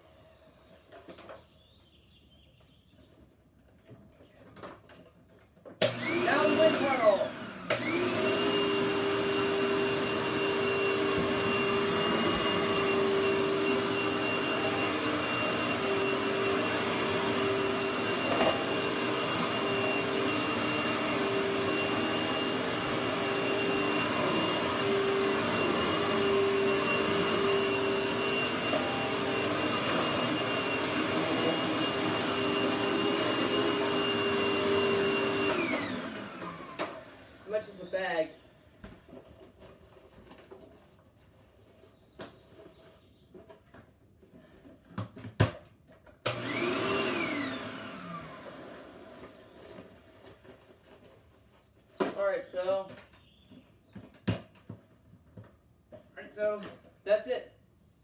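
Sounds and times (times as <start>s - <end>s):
vacuum cleaner running: 5.8s - 38.3s, 46.2s - 51.2s.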